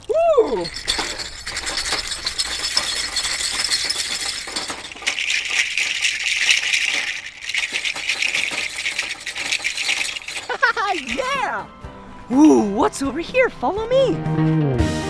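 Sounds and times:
shakers rattling: 0:00.0 - 0:11.6.

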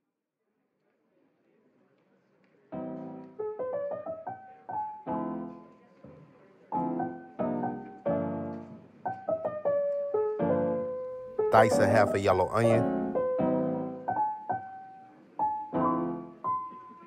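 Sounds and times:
piano music: 0:02.8 - 0:05.8, 0:06.7 - 0:17.0.

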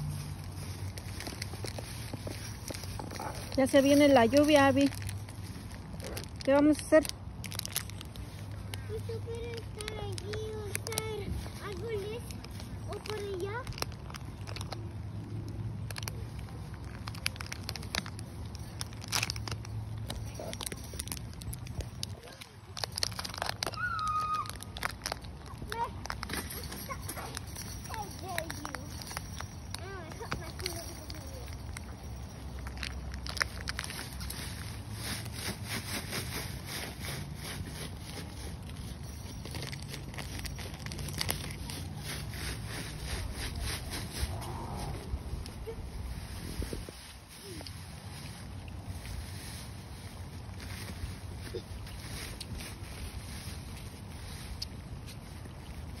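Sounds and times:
leaves rustling and crackling: 0:00.0 - 0:56.0
wind rumble on microphone: 0:43.0 - 0:47.4.

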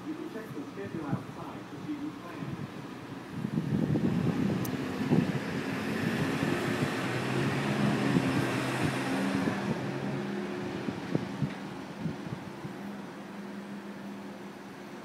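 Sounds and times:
passing traffic: 0:00.0 - 0:15.0
vehicle engine humming: 0:00.0 - 0:15.0
wind on microphone: 0:02.3 - 0:13.2.

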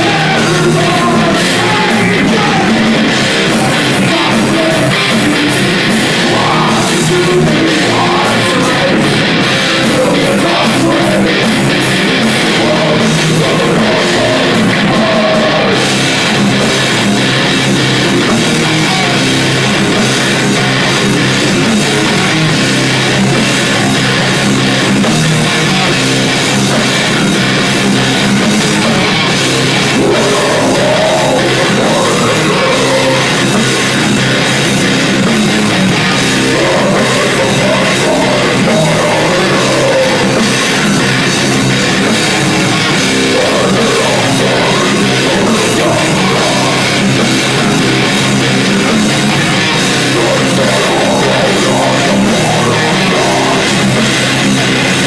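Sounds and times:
heavy metal band playing live: 0:00.0 - 0:55.0.

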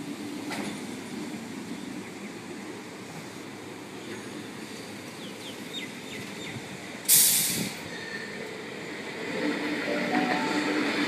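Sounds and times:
train low background hum: 0:00.0 - 0:11.0
compressed air hiss: 0:07.1 - 0:07.8.

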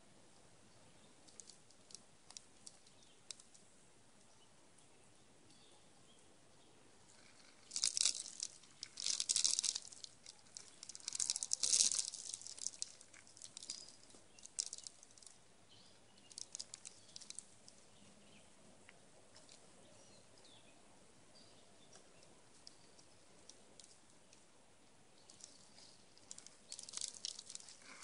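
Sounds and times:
squirrel crunching seeds: 0:01.2 - 0:03.7, 0:07.1 - 0:18.1, 0:25.2 - 0:28.0.

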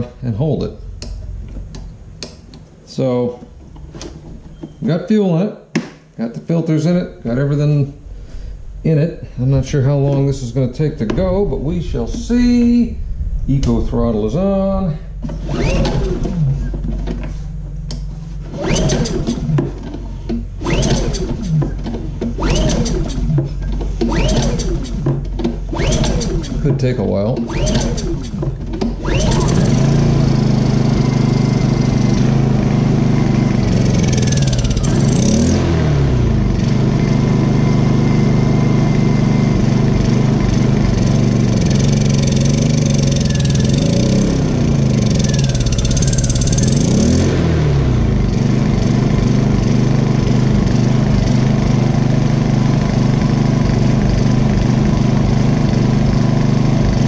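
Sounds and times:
generator engine running: 0:00.0 - 0:05.0, 0:06.8 - 0:57.0.

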